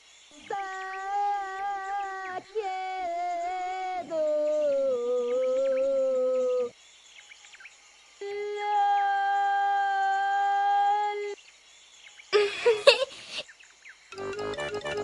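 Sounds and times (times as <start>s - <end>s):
faint bird chirps: 0.0s - 14.2s
person humming a steady note: 14.2s - 15.0s.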